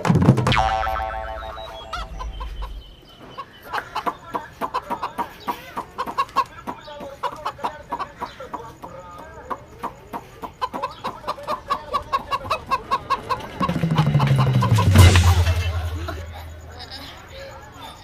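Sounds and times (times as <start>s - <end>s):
chickens clucking rapidly: 0.0s - 18.0s.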